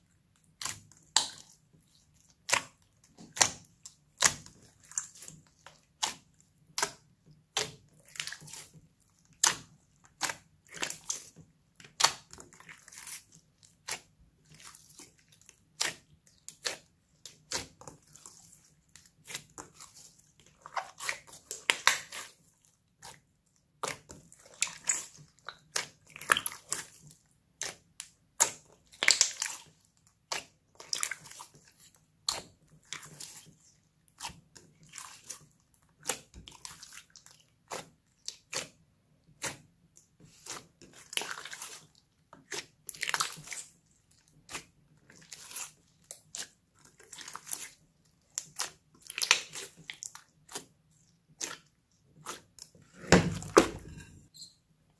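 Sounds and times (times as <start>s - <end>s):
slime squelching: 0.0s - 54.3s.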